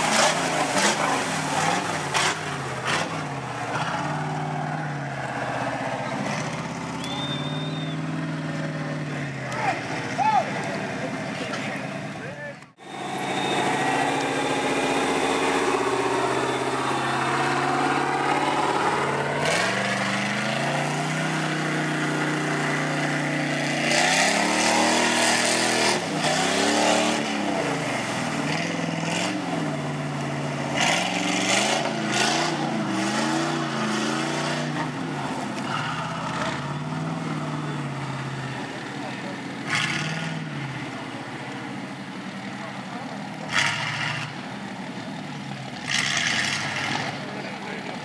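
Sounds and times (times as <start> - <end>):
mud splashing: 0.0 - 11.7
truck engine revving: 0.0 - 48.0.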